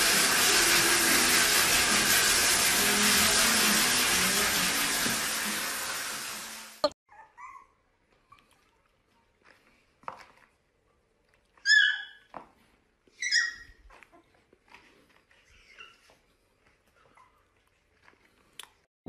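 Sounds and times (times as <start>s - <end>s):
rushing blower noise: 0.0s - 6.8s
puppy yipping: 7.1s - 8.6s, 11.6s - 12.4s, 13.1s - 14.4s, 15.4s - 16.2s.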